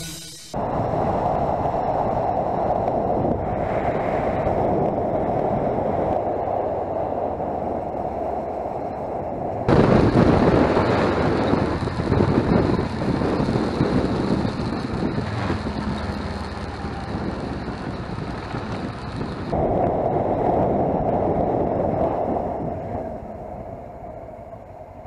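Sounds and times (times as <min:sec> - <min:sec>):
motorcycle engine: 0:00.0 - 0:00.6, 0:09.7 - 0:19.6
wind buffeting microphone: 0:00.5 - 0:25.0.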